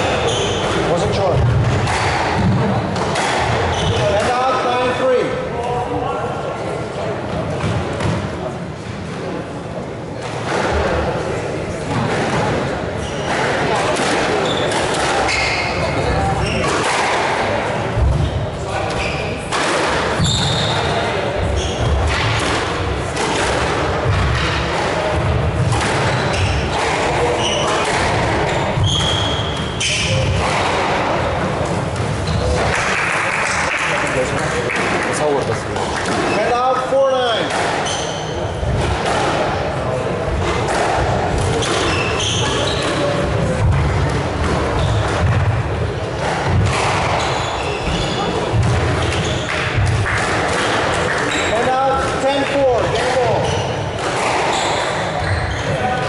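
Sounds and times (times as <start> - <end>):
squash ball struck by rackets: 0.6 - 4.4, 19.5 - 20.9, 21.8 - 33.8, 37.4 - 39.6, 40.3 - 51.5, 54.0 - 55.2.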